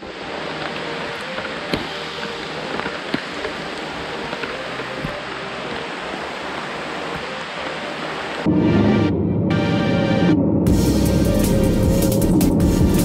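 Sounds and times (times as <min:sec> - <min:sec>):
rain falling on foliage: 0:00.0 - 0:08.5.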